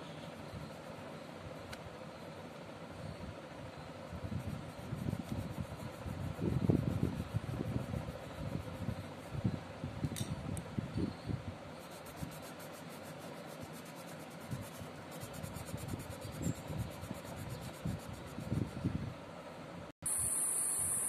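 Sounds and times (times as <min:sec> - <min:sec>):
pencil scratching on paper: 0:11.8 - 0:18.5.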